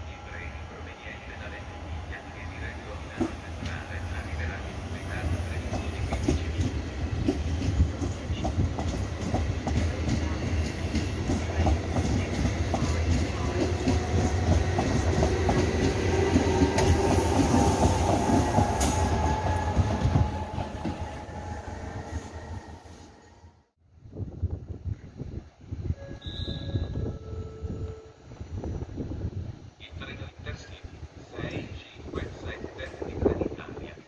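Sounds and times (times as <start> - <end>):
train whine and hiss: 0.0 - 23.4
train rumbling: 0.0 - 23.5.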